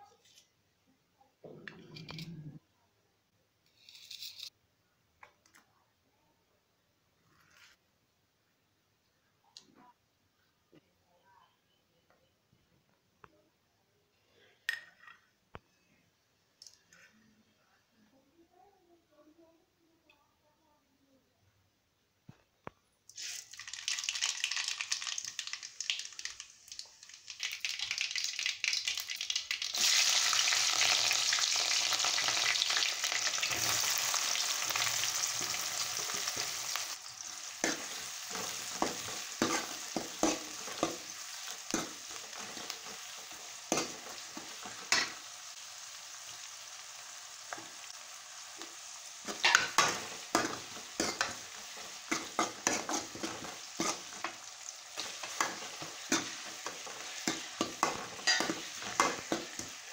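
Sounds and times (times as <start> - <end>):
onions sizzling in hot oil: 23.1 - 59.9
ladle scraping and knocking pan: 55.0 - 59.7.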